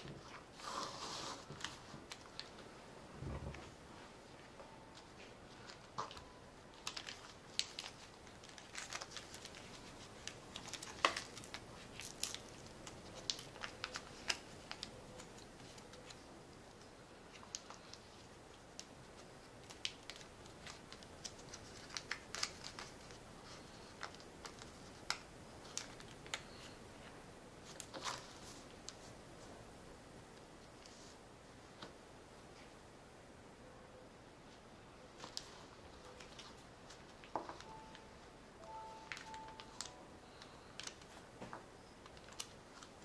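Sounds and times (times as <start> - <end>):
paper crinkling and creasing: 0.0 - 2.7, 4.9 - 29.5, 35.2 - 37.9, 38.7 - 43.0.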